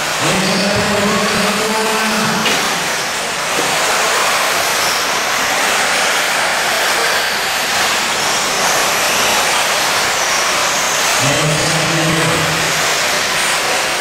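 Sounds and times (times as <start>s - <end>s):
high electric motor whine: 0.0s - 14.0s.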